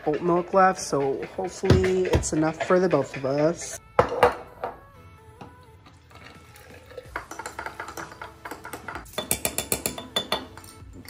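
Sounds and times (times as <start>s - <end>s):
coffee pouring over ice: 5.9s - 7.8s
spoon clinking against glass and ice: 6.0s - 11.0s.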